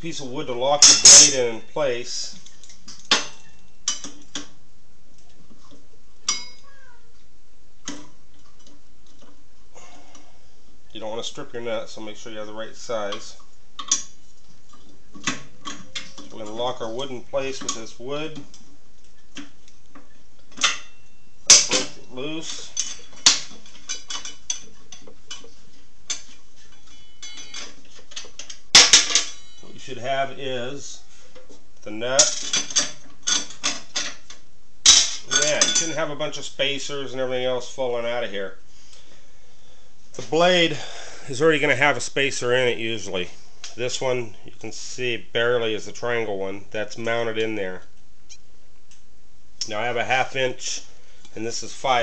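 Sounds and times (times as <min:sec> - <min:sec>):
metal clack: 0:00.8 - 0:01.4
wrench clinking on metal: 0:00.8 - 0:01.4, 0:26.1 - 0:29.6.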